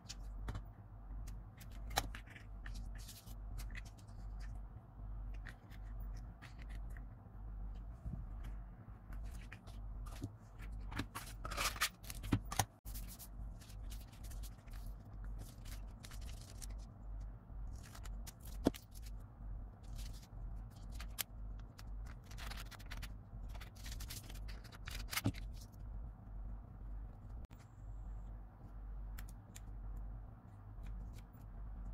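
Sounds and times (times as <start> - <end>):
steady low hum: 0.0 - 31.9
paper rustling and scraping: 1.6 - 4.6, 8.0 - 17.0.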